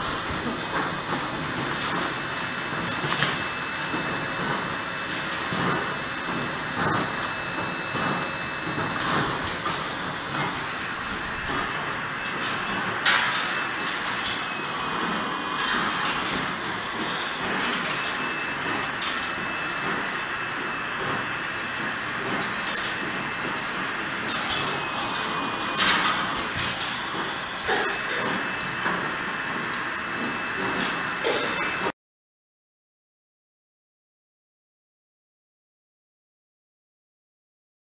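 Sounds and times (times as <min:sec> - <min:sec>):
machinery clattering: 0:00.1 - 0:31.9
sharp machine clacks: 0:00.4 - 0:31.9
thin high whine: 0:05.0 - 0:23.3.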